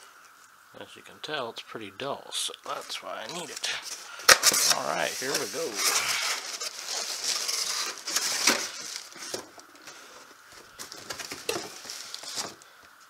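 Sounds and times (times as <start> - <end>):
cardboard scraping and rustling: 2.7 - 12.6.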